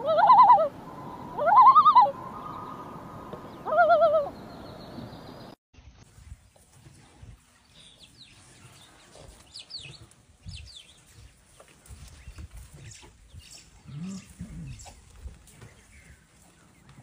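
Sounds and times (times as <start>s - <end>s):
small birds chirping: 7.5s - 17.0s.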